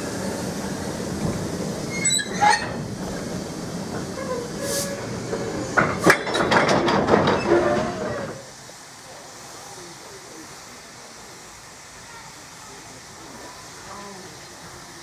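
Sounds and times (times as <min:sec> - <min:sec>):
railway wagons rumbling: 0:00.0 - 0:15.0
wagons clanking and knocking: 0:01.2 - 0:08.4
brief squeaks: 0:01.9 - 0:02.8.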